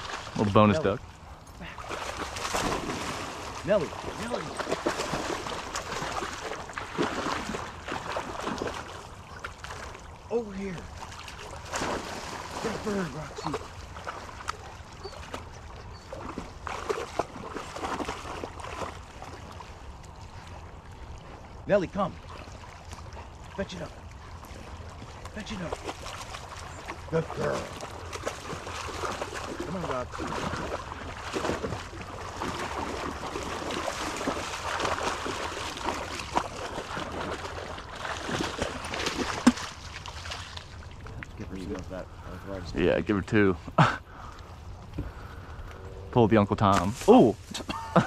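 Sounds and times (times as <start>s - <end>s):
dog splashing through water: 1.6s - 10.2s, 10.8s - 19.8s, 24.2s - 40.8s.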